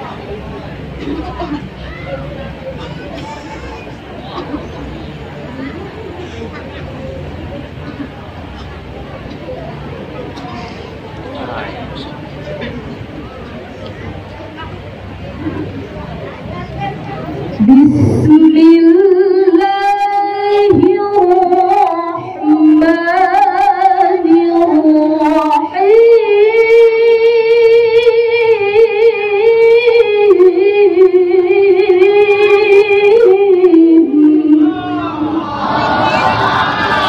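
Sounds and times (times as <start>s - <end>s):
woman reciting melodically: 17.5s - 35.4s.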